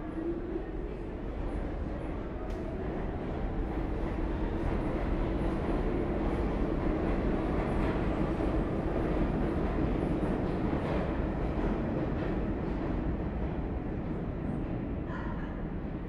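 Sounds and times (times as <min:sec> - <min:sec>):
subway train rumbling: 0:00.0 - 0:16.0.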